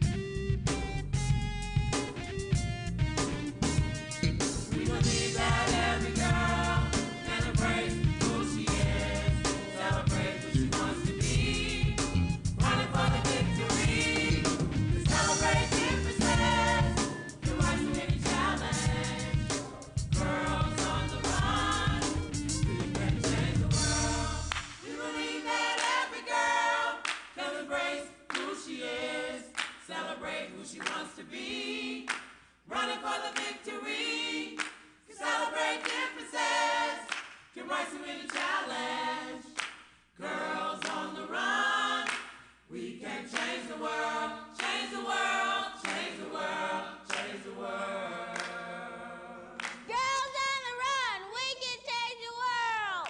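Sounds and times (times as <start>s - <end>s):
low bass accompaniment: 0.0s - 9.4s, 10.0s - 24.6s
gospel choir singing: 4.4s - 49.9s.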